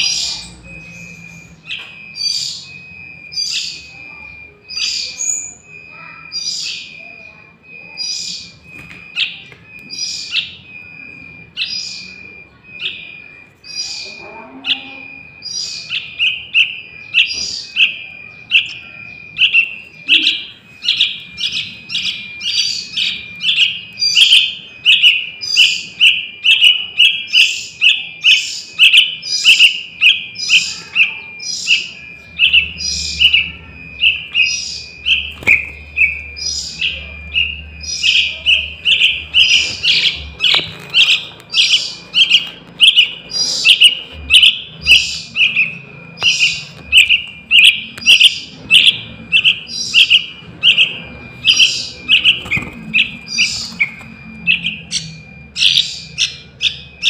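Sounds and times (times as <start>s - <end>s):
bird chick chirping: 0.0s - 57.0s.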